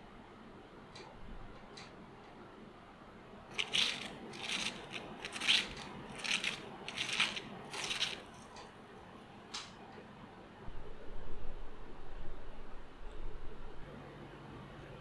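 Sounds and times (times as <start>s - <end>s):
fried crust crackling and crunching: 3.5s - 8.5s.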